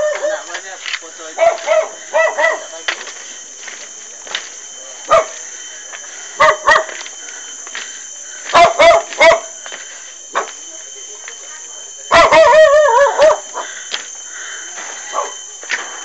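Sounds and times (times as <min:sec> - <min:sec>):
dog barking: 0:00.0 - 0:00.4, 0:01.4 - 0:02.7, 0:05.1 - 0:05.4, 0:06.4 - 0:07.0, 0:08.5 - 0:09.5, 0:12.1 - 0:13.6.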